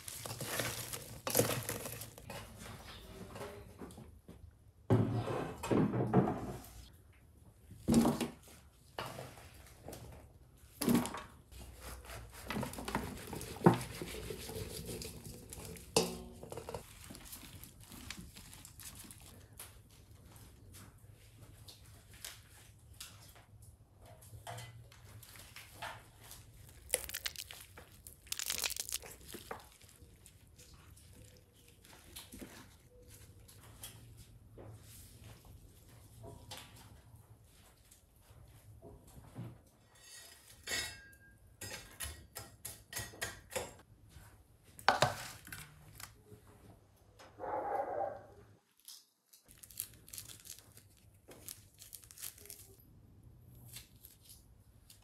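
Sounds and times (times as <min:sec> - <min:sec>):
crinkling and rustling: 0:00.0 - 0:04.4, 0:07.8 - 0:39.6, 0:48.7 - 0:52.9.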